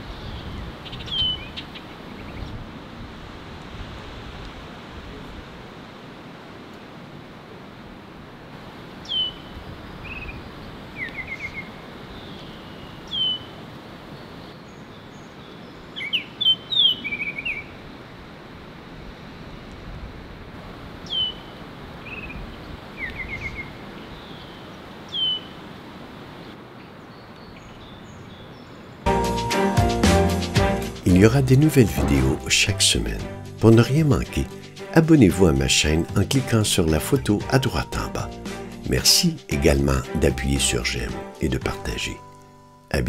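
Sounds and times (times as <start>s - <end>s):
steady outdoor hiss: 0.0s - 43.0s
bird whistled calls: 25.1s - 25.5s.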